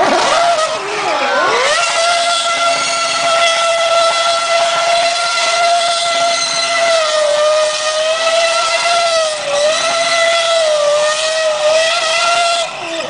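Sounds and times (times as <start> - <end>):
race car engine at high revs: 0.0 - 13.0
tyres spinning on asphalt: 0.0 - 13.0.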